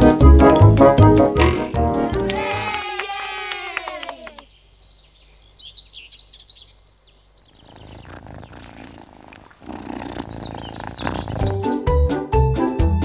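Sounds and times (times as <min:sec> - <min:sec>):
high bird chirps: 0:04.4 - 0:09.0, 0:09.8 - 0:11.7
cat purring: 0:07.5 - 0:11.8.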